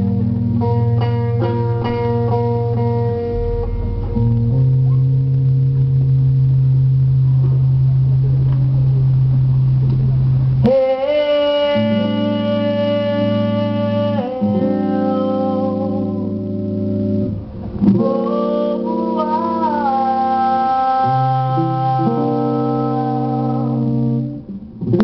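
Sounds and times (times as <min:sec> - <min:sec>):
live rock band playing: 0:00.0 - 0:07.9.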